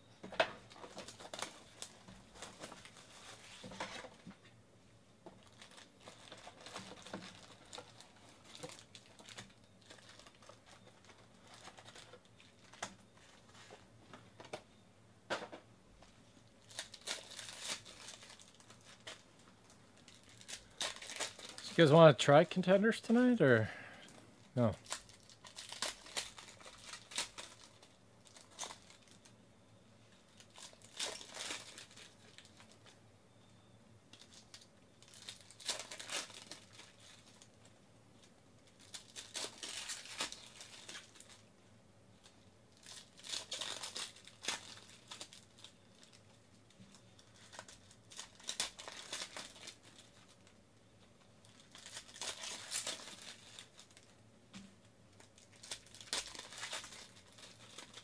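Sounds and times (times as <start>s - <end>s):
plastic wrappers crinkling and tearing: 0.5s - 4.5s, 5.3s - 14.6s, 16.4s - 23.5s, 24.5s - 29.4s, 30.0s - 33.0s, 34.1s - 54.2s, 55.1s - 58.0s.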